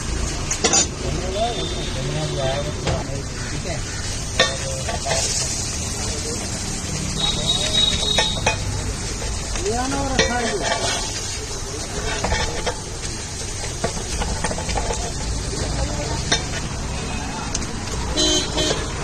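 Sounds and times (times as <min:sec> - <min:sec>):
steady sizzle: 0:00.0 - 0:19.0
masher pounding on iron pan: 0:04.2 - 0:05.4.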